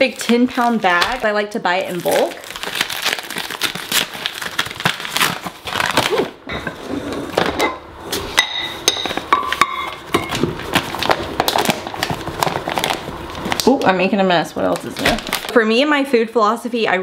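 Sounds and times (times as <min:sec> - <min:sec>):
paper bag crinkling: 0:00.0 - 0:06.4, 0:10.4 - 0:13.8, 0:14.7 - 0:15.6.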